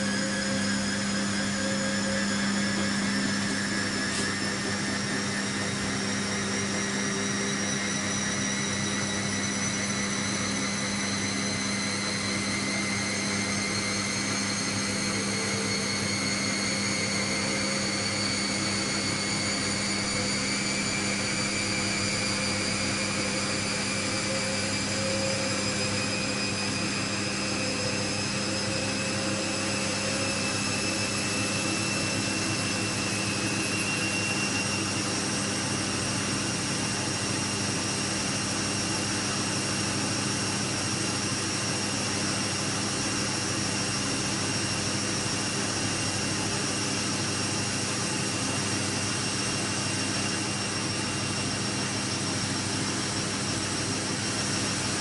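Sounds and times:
steady hum: 0.0 - 55.0
washing machine motor whine: 0.0 - 55.0.

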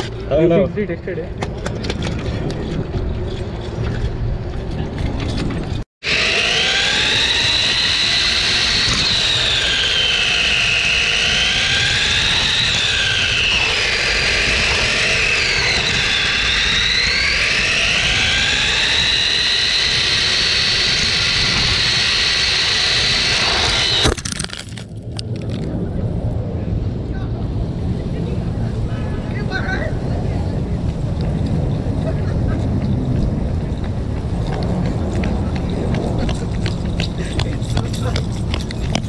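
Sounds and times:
steady low rumble: 0.0 - 39.0
electric motor whining: 6.0 - 24.8.

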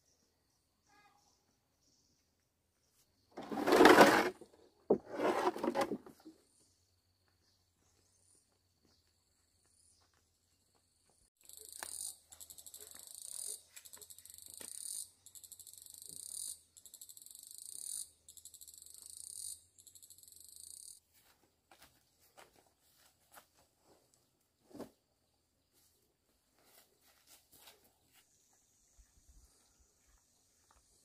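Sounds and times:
insect buzzing trill: 11.4 - 21.0.

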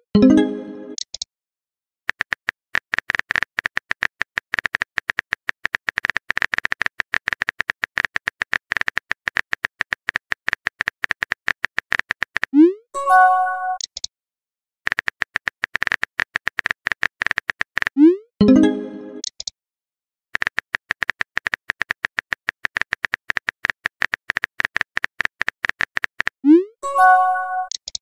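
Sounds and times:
phone keyboard typing clicks: 2.1 - 12.5, 13.8 - 14.1, 14.9 - 18.0, 19.2 - 19.5, 20.4 - 26.4.

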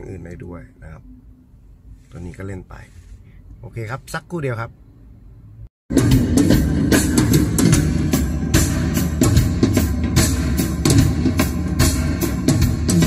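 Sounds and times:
drum hits: 5.9 - 13.0.

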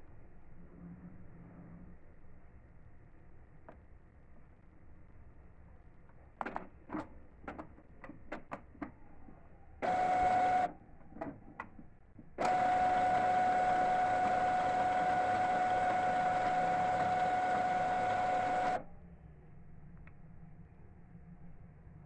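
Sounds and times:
printer mechanism clicks: 9.8 - 18.8
printer motor whirring: 9.8 - 18.8.

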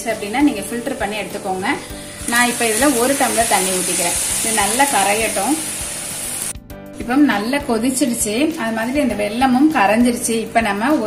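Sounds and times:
sizzling hiss in a pan: 1.1 - 6.6.

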